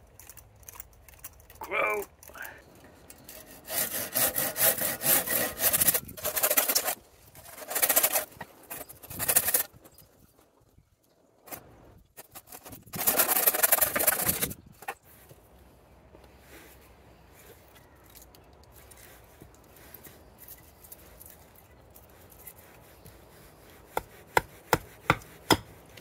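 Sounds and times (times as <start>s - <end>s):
hand saw cutting wood: 3.3s - 8.4s, 12.4s - 14.5s, 22.6s - 26.0s.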